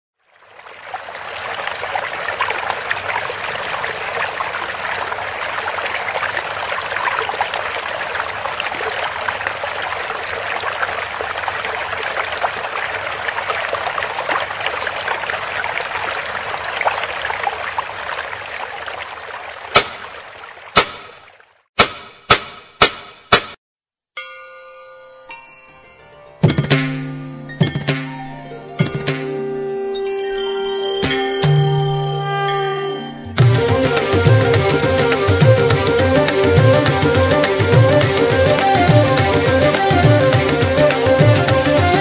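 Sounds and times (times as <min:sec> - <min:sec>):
rushing stream over loudspeakers: 0:00.2 - 0:21.4, 0:32.2 - 0:42.0.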